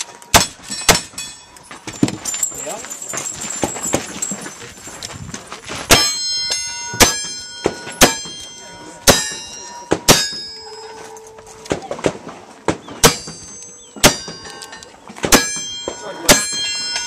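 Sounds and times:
steel target ringing clang: 0.3s - 1.6s, 5.9s - 11.3s, 13.0s - 17.0s.

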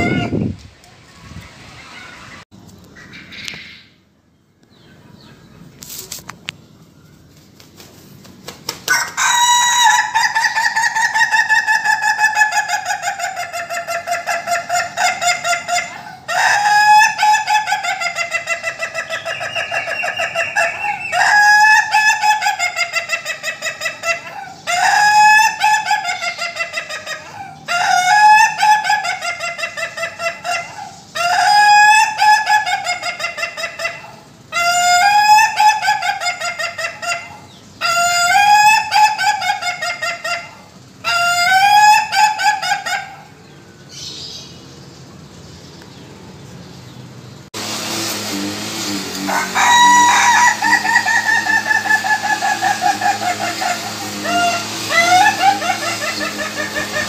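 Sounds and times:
rooster crowing with stuttering notes: 8.8s - 12.9s, 14.2s - 17.9s, 19.6s - 22.7s, 47.6s - 57.0s.

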